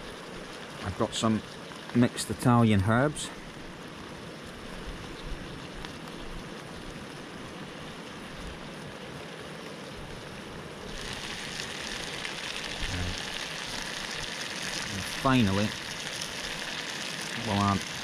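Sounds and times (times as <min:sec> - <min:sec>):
food sizzling in a pan: 0:00.0 - 0:03.6, 0:07.6 - 0:18.0.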